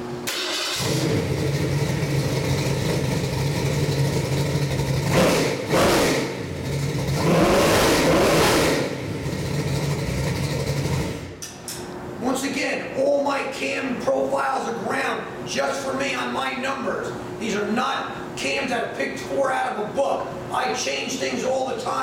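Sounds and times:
engine idling and revving: 0:00.3 - 0:11.5.

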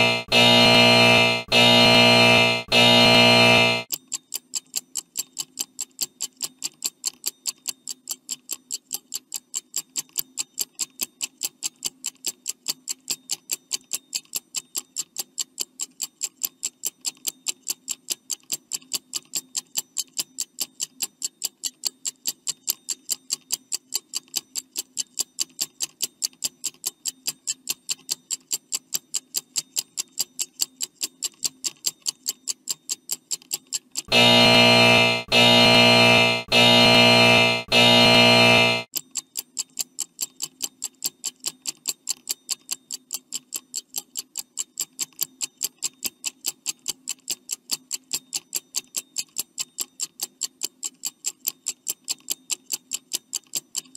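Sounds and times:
stopwatch ticking: 0:00.0 - 0:03.9.

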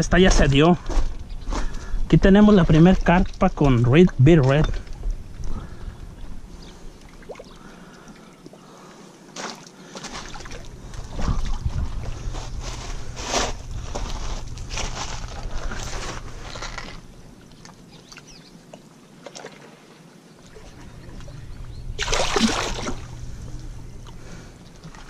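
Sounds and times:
wind rumbling on microphone: 0:00.0 - 0:07.0, 0:10.5 - 0:17.4.

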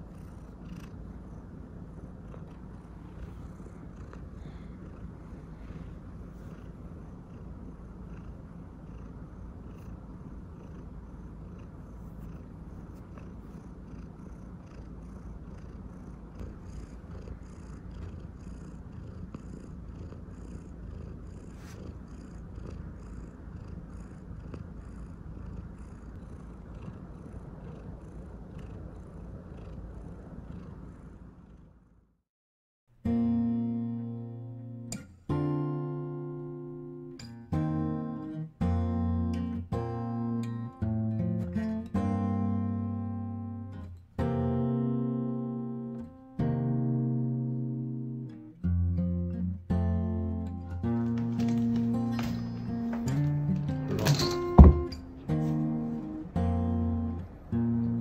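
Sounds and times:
cat purring: 0:00.0 - 0:32.2, 0:34.6 - 0:58.0
acoustic guitar music: 0:33.0 - 0:58.0.

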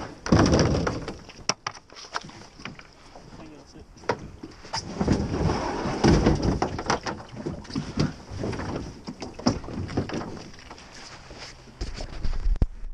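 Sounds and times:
kayak hull scraping over stones: 0:04.3 - 0:12.6.

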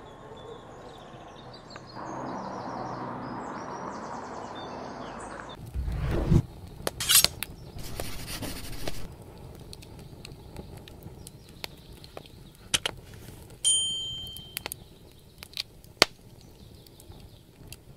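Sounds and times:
bright bell ding: 0:13.7 - 0:14.6.

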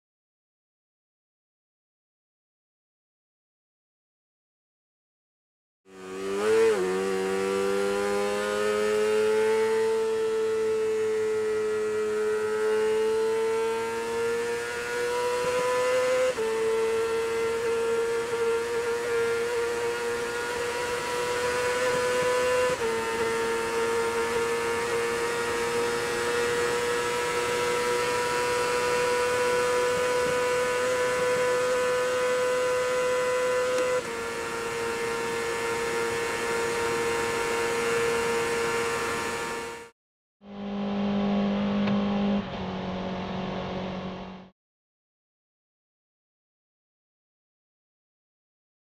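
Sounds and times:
racing engine at high revs: 0:05.9 - 0:39.9, 0:40.5 - 0:44.5.

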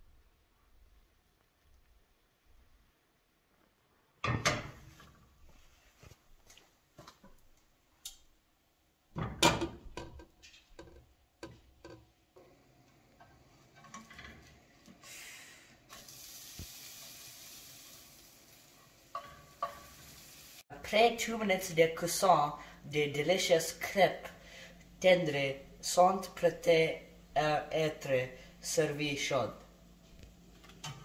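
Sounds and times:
pan and utensils clattering: 0:04.2 - 0:05.1, 0:13.3 - 0:14.7, 0:19.1 - 0:20.2, 0:30.6 - 0:31.0
crepe sizzling in a pan: 0:15.2 - 0:20.7.

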